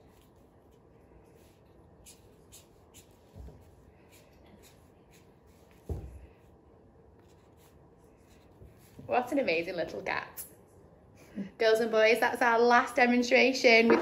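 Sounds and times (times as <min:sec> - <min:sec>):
marker scratching on paper: 0:00.0 - 0:06.1, 0:07.2 - 0:09.4.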